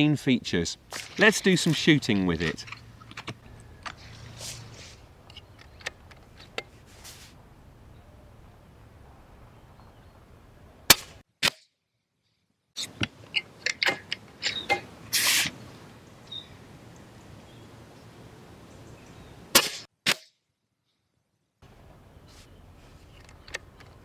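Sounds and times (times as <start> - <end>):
air rifle shot: 10.9 - 11.6, 19.5 - 20.3
short metal slide: 15.1 - 15.5.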